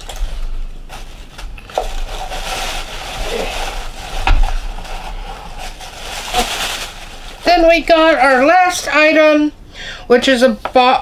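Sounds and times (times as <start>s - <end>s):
packing material rustling: 0.0s - 8.5s.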